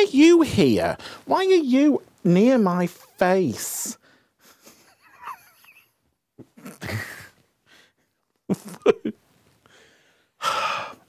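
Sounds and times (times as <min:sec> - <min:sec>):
man laughing: 0:04.5 - 0:07.4, 0:08.5 - 0:09.2.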